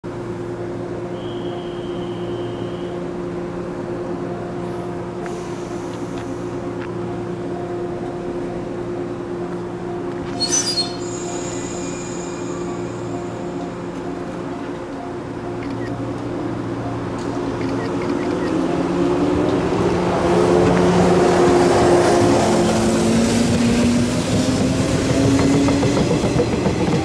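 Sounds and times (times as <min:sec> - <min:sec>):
electric train hum: 0:00.0 - 0:27.0
shrill whistle pulses: 0:01.1 - 0:03.1, 0:10.3 - 0:12.6.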